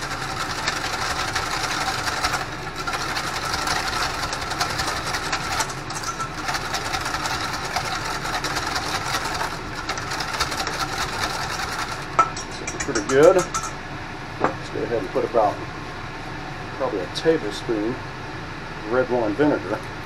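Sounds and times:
whisk rattling in metal bowl: 0.0 - 13.8.

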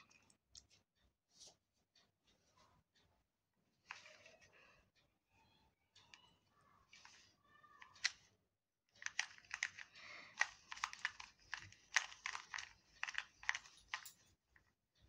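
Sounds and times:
plastic puzzle cube clicking: 7.8 - 8.3, 9.0 - 14.0.

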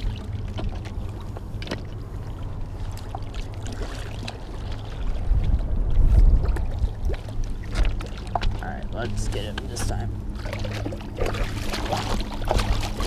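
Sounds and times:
churning water: 0.0 - 13.0
fish splashing and thrashing: 0.0 - 13.0
low rumble: 0.0 - 13.0.

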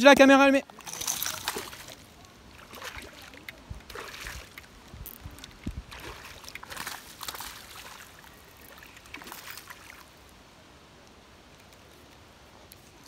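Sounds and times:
fish splashing in water: 0.8 - 4.8, 5.8 - 10.1.

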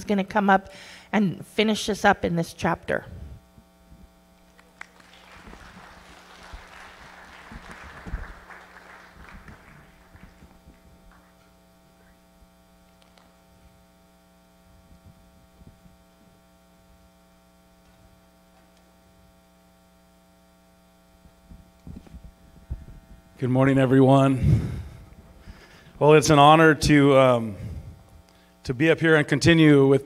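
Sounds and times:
electrical mains hum: 0.0 - 30.0.

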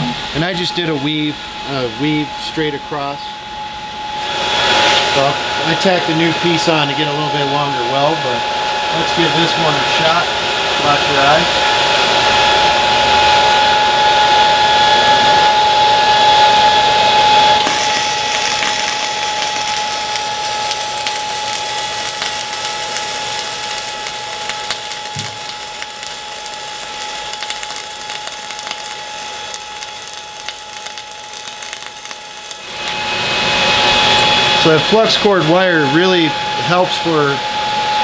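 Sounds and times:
whirring hum: 0.0 - 38.0
welding arc crackling: 17.6 - 34.2.

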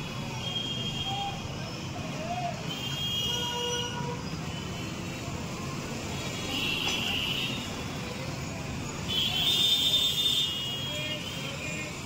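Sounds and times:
motorbike and rickshaw engines: 0.0 - 12.0.

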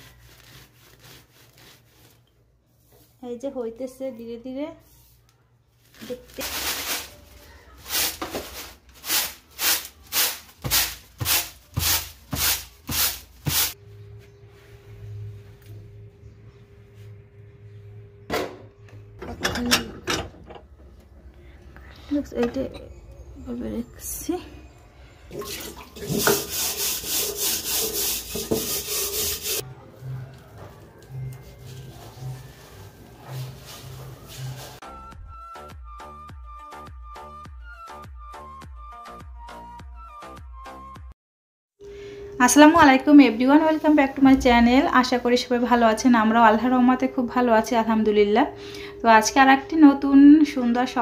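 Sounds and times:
lentils swishing on winnowing tray: 5.9 - 13.8, 31.4 - 34.8
steady low hum: 13.8 - 19.2
hands rubbing in a metal bowl: 26.0 - 29.6, 31.2 - 34.8.

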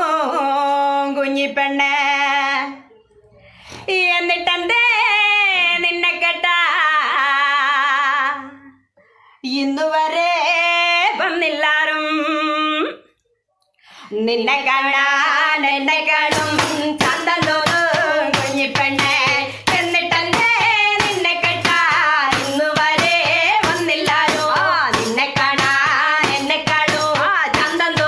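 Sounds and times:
women singing unaccompanied: 0.0 - 2.9, 3.8 - 13.1, 14.1 - 28.0
hand claps: 16.3 - 28.0.

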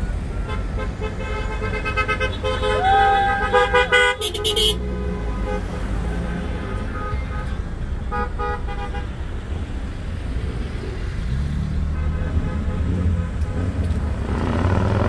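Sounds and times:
car horns honking: 0.0 - 9.2, 11.8 - 13.8
low rumble of car engines: 0.0 - 15.0.

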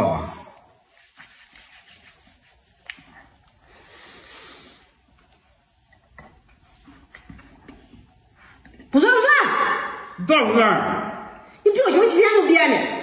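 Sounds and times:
sachet rubbing and rustling: 0.7 - 2.8.

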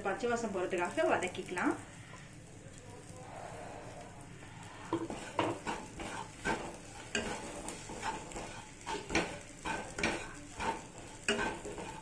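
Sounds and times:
sizzle from hot pan: 0.0 - 12.0
wooden spatula scraping a pan: 4.8 - 12.0.

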